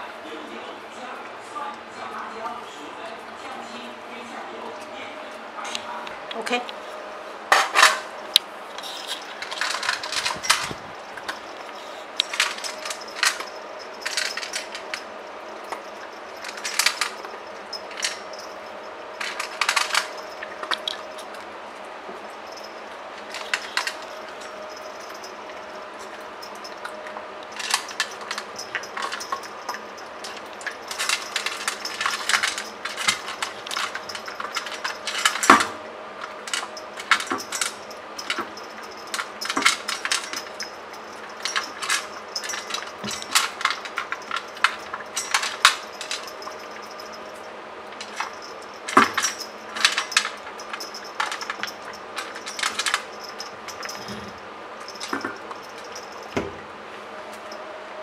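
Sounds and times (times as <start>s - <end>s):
dog crunching kibble: 8.4s - 54.1s.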